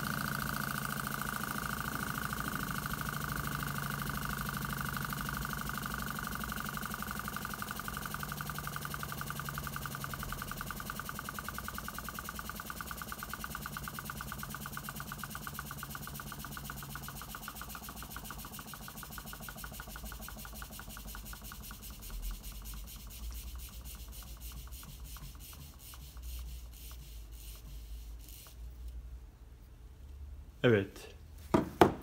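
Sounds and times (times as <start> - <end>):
small engine ticking: 0.0 - 28.6.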